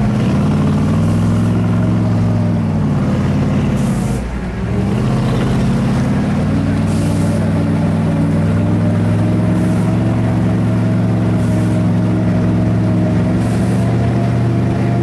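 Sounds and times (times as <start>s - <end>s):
armoured vehicle engine running: 0.0s - 15.0s.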